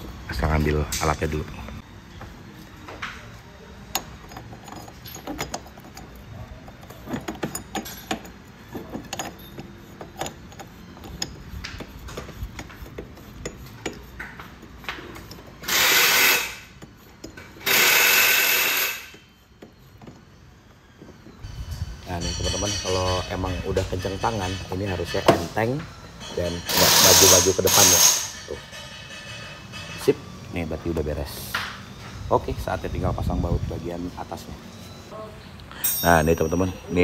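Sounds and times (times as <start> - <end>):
metal tools clicking and clinking: 2.6 - 20.4, 21.1 - 30.3, 35.6 - 37.0
power tool bursts: 17.6 - 19.1.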